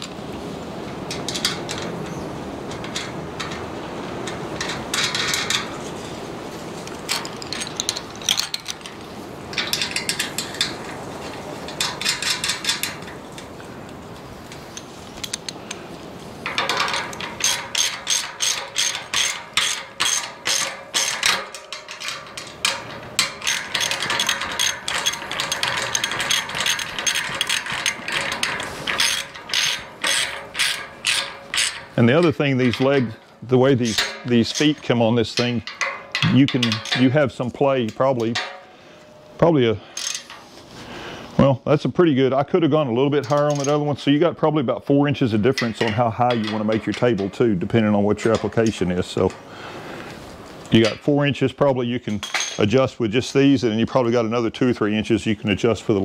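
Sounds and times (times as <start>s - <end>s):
ratchet wrench clicking: 16.5s - 32.0s.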